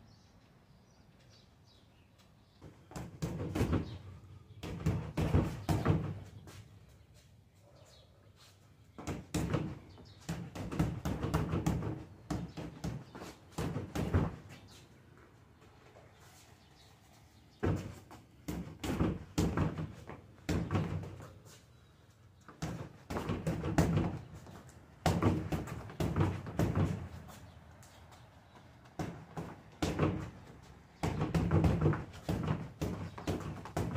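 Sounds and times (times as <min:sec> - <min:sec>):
gloves punching heavy bag: 0:25.0 - 0:27.1, 0:31.0 - 0:33.9.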